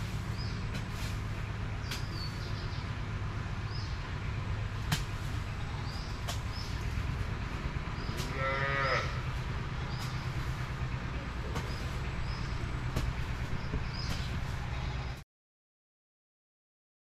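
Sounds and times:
steady low rumble: 0.0 - 15.2
farm animal call: 5.4 - 13.5.

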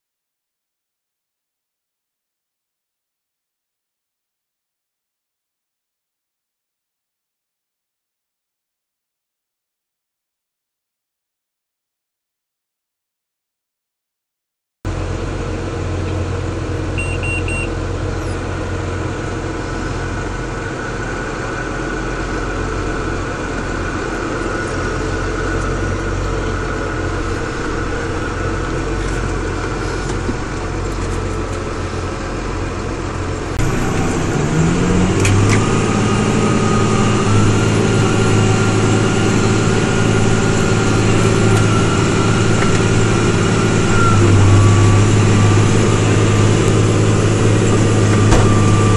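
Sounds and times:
thin engine whine: 14.9 - 48.9
tractor diesel engine running: 14.9 - 48.9.

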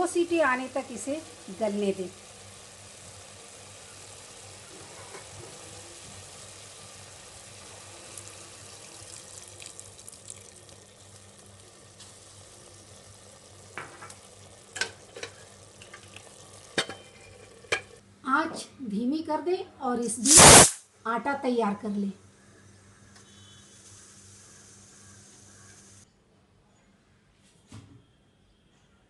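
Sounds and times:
minced meat sizzling: 0.0 - 18.0, 20.2 - 20.8
water pouring: 7.2 - 18.0.

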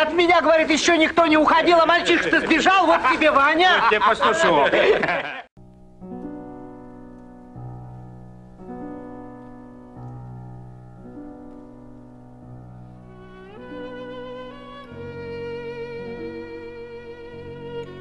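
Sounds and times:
slow piano chords: 5.6 - 18.0.

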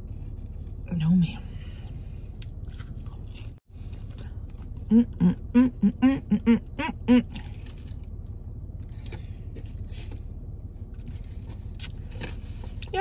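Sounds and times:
steady low rumble: 0.0 - 13.0
woman humming with mouth full: 4.9 - 7.4.

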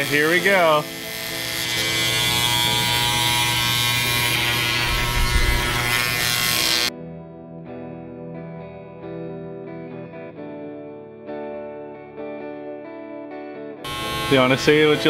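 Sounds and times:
electric hair clippers buzzing: 0.0 - 6.9, 13.8 - 15.0
electric guitar music: 0.0 - 15.0
low rumble: 4.8 - 6.2.

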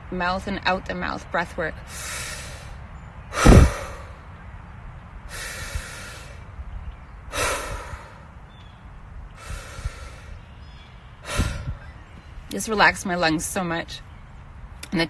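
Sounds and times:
woman breathing deeply: 1.9 - 4.2, 5.3 - 6.5, 7.3 - 8.3, 9.4 - 10.4, 11.2 - 11.9.

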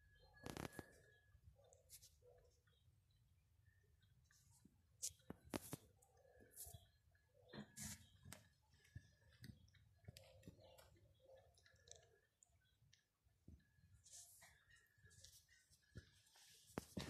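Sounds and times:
faint clicks and taps: 4.0 - 17.0.

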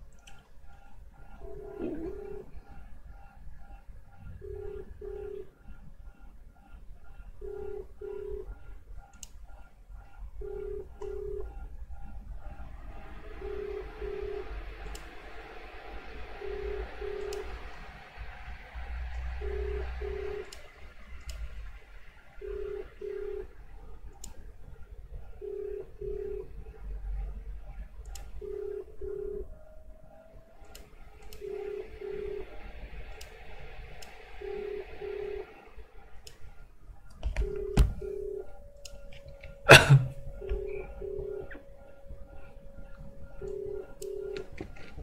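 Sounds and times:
telephone ringback tone: 1.4 - 2.6, 4.4 - 5.5, 7.4 - 8.6, 10.4 - 11.5, 13.4 - 14.6, 16.0 - 17.7, 19.4 - 20.5, 22.4 - 23.5, 25.4 - 26.6, 28.4 - 29.6, 31.4 - 32.7, 34.3 - 35.8, 37.3 - 45.0.

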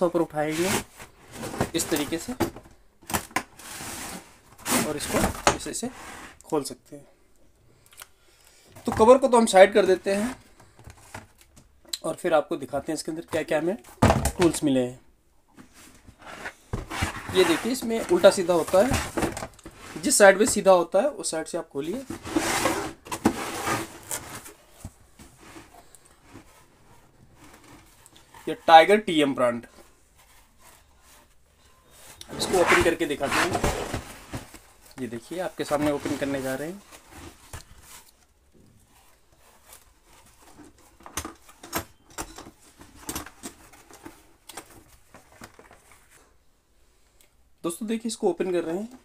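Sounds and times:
plastic case scraping on floor: 0.4 - 2.6, 3.6 - 6.4, 15.6 - 20.2, 21.9 - 24.7, 32.2 - 34.6.

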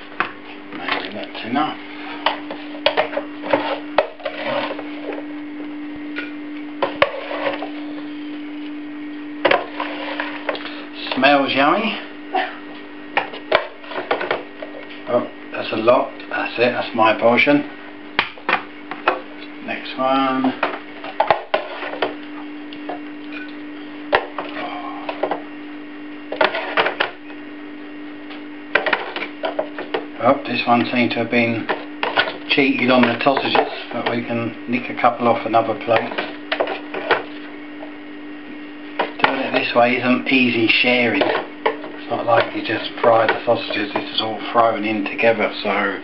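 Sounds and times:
steady low hum: 0.0 - 46.0
plastic spoon scraping a pan: 2.0 - 5.2, 6.8 - 7.9, 9.4 - 10.8, 20.6 - 22.2, 26.3 - 27.1, 28.7 - 30.0, 31.6 - 34.3, 41.0 - 44.2
serving spoon scraping crockery: 2.9 - 4.8, 6.8 - 7.8.

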